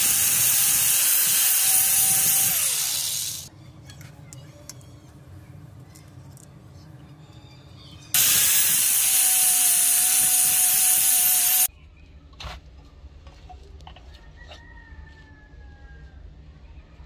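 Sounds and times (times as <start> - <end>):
power grinder grinding steel: 0.0 - 3.5, 8.2 - 11.7.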